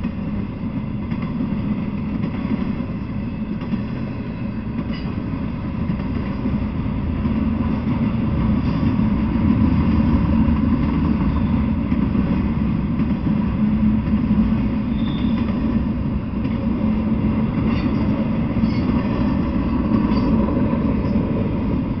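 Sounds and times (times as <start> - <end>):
train wheels rumbling on rails: 0.0 - 22.0
faint high squeaks: 14.9 - 15.5.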